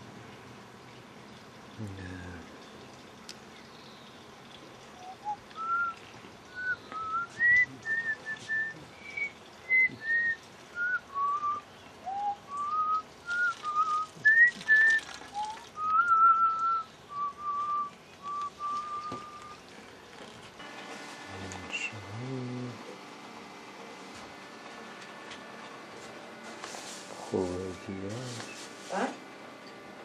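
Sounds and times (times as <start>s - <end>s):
person whistling a tune: 5.0s - 6.0s, 6.6s - 19.6s.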